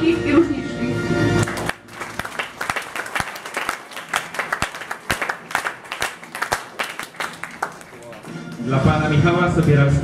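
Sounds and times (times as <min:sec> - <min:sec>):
loud close claps: 0:01.4 - 0:08.6
audience applauding: 0:01.4 - 0:08.7.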